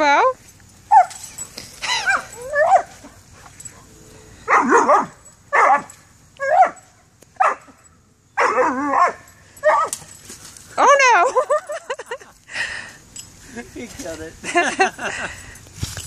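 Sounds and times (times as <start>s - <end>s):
dog barking and yipping: 0.9s - 3.9s, 4.5s - 10.2s.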